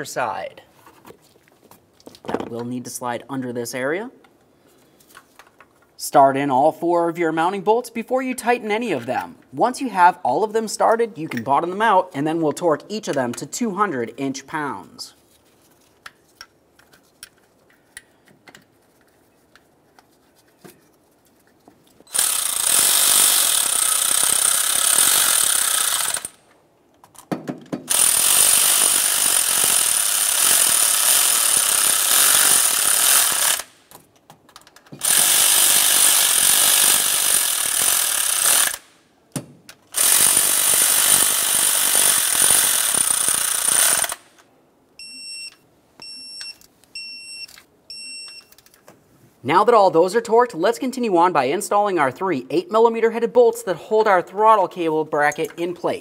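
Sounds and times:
air ratchet bursts: 22.1 - 26.4, 27.9 - 33.8, 35.0 - 39.0, 39.9 - 44.4
bolts clicking: 33.1 - 35.1
torque wrench short beeps: 45.0 - 48.6.

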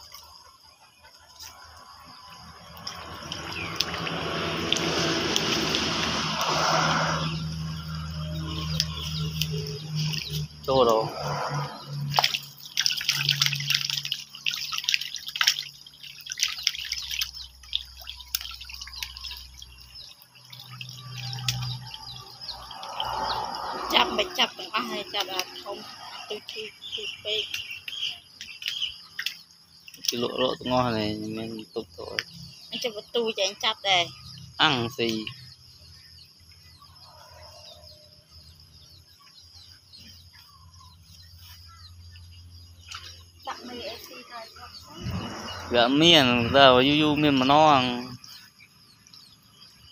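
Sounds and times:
small birds chirping: 0.0 - 49.9
fish splashing at surface: 1.4 - 26.6, 27.5 - 30.4.

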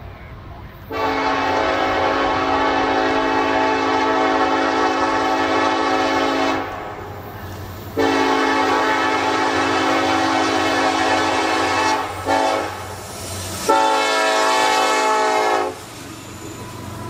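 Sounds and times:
low train rumble: 0.0 - 17.0
locomotive air horn: 0.9 - 7.2, 7.9 - 13.0, 13.6 - 15.9.

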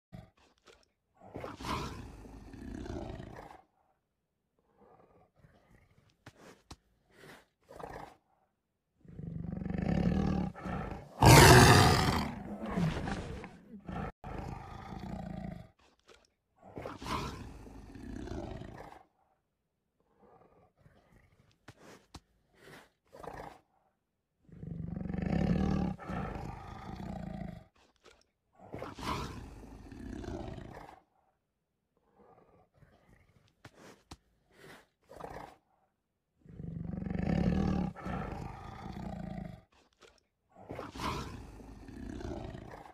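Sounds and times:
tiger roar through phone speaker: 9.1 - 15.7, 24.6 - 27.6, 36.5 - 39.6.

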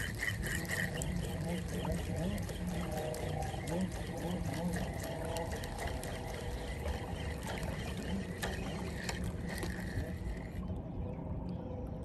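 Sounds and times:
fishing reel clicks and knocks: 0.0 - 6.4
river water lapping and rushing: 0.0 - 10.7.

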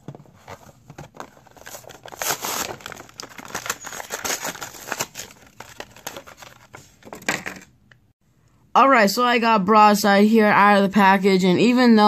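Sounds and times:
plastic packaging crackling and tearing: 0.5 - 6.8.

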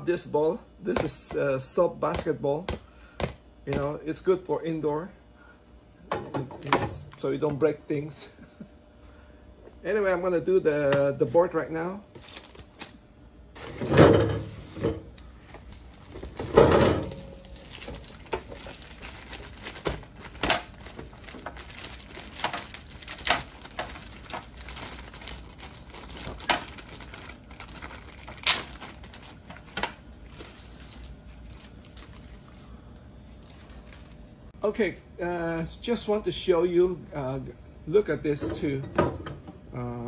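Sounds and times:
plastic bag crinkling: 12.2 - 13.0, 15.2 - 32.6, 33.2 - 34.3.

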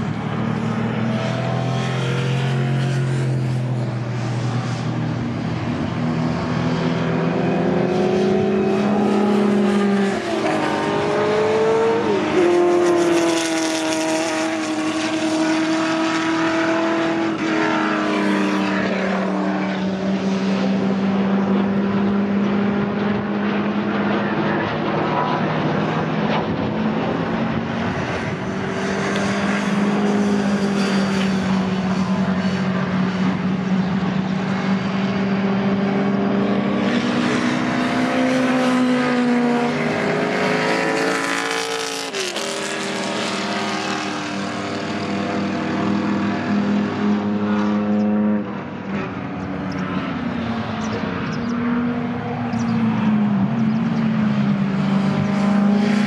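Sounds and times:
race car engines at speed: 0.0 - 56.0.

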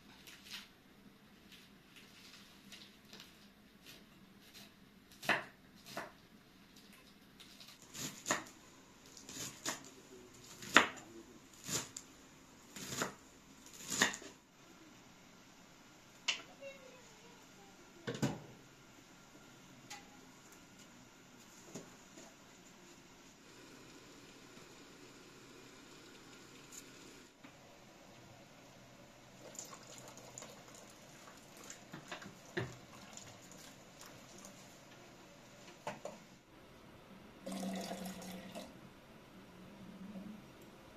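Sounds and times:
liquid trickling into pot: 29.4 - 34.6.

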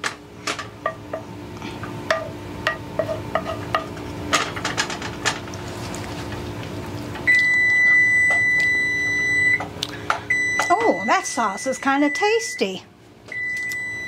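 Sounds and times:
oven timer beeping: 7.2 - 9.7, 10.3 - 14.0.

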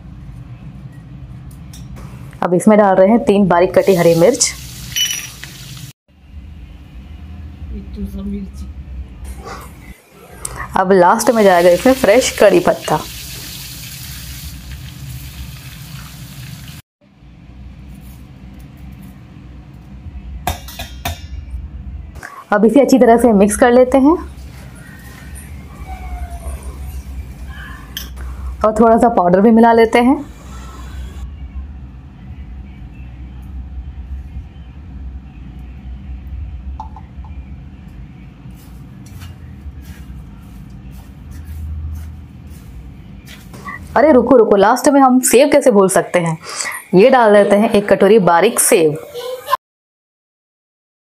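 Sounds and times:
leaves sizzling in hot oil: 3.7 - 6.0, 11.2 - 16.8.

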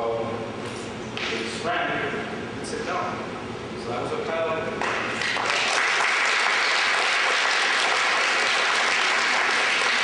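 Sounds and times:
audience applauding: 5.2 - 10.0.

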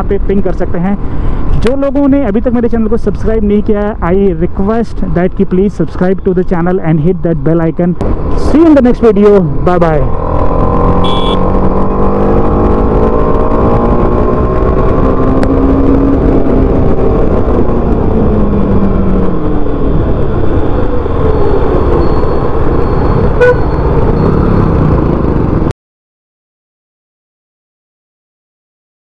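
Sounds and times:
wind rush on microphone: 7.9 - 25.7.

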